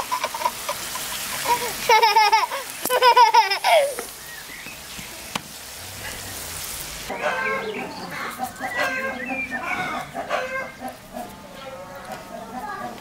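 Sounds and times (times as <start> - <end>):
meat sizzling in a pan: 0.0 - 7.1
chickens clucking: 0.0 - 13.0.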